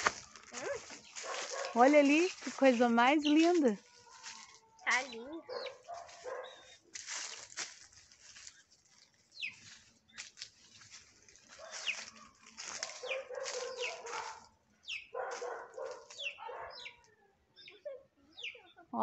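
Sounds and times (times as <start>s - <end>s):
chicks peeping: 3.2s - 6.8s, 9.3s - 10.3s, 11.5s - 18.8s.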